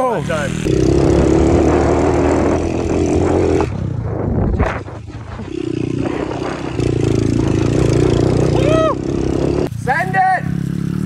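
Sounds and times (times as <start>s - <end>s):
motorbike engine running: 0.0s - 11.0s
short thump: 4.1s - 5.5s.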